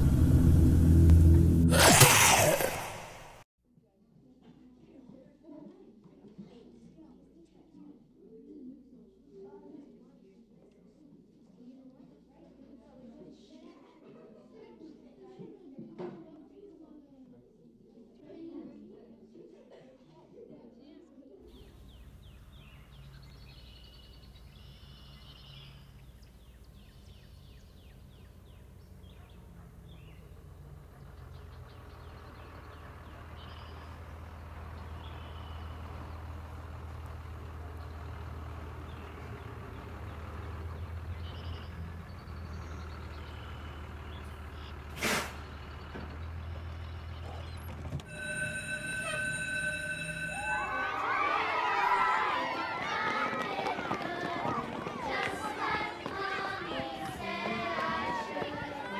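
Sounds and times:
bus engine running: 0:00.0 - 0:03.4, 0:21.5 - 0:58.9
birds chirping: 0:21.5 - 0:53.4
air-brake hiss: 0:44.9 - 0:45.5
steady ringing tone: 0:48.1 - 0:51.8.

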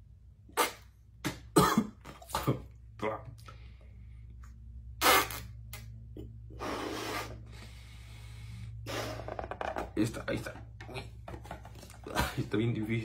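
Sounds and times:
person blowing up balloon: 0:00.5 - 0:01.5, 0:04.9 - 0:05.9, 0:06.5 - 0:07.8, 0:08.8 - 0:09.6.

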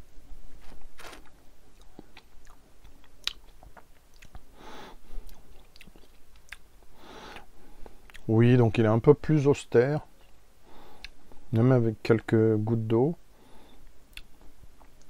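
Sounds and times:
mouth clicks and lip smacks: 0:01.8 - 0:04.5, 0:05.2 - 0:06.7, 0:14.1 - 0:15.0
soft breaths: 0:04.4 - 0:05.7, 0:06.8 - 0:08.2, 0:10.5 - 0:11.5, 0:13.3 - 0:14.7.

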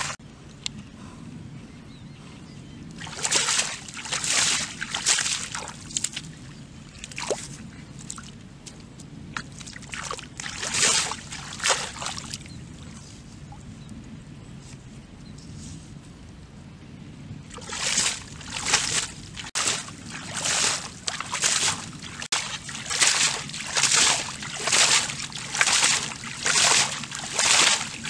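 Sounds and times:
muddy water splashing: 0:03.0 - 0:08.4, 0:09.4 - 0:13.1, 0:17.5 - 0:28.0.

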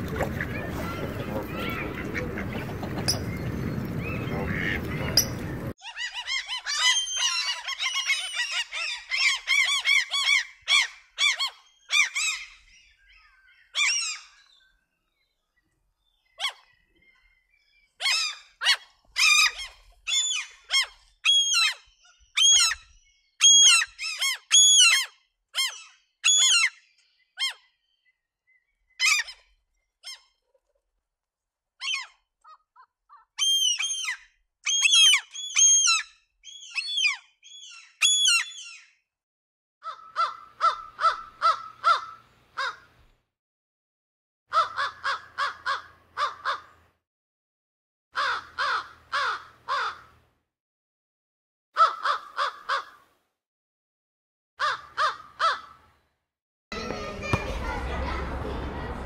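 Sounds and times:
birds calling: 0:00.0 - 0:30.2, 0:31.8 - 0:38.9, 0:39.8 - 0:43.0, 0:44.5 - 0:46.9.

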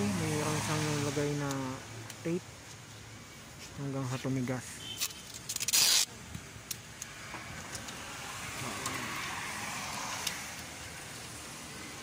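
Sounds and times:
car passing by: 0:00.0 - 0:01.4, 0:07.1 - 0:12.0.

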